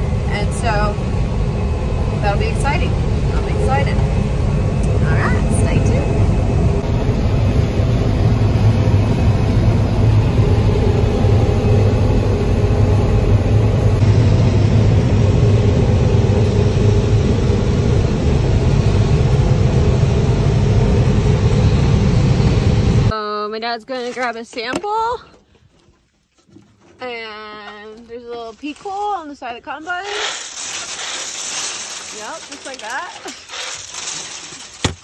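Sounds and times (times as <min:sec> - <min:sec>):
combine harvester engine hum: 0:00.0 - 0:23.1.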